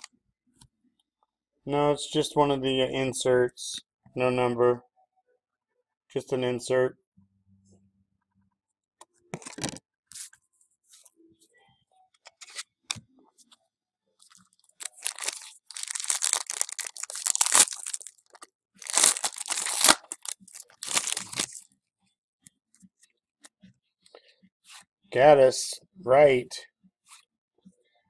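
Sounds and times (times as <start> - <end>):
foil wrapper tearing and crinkling: 14.8 - 21.6.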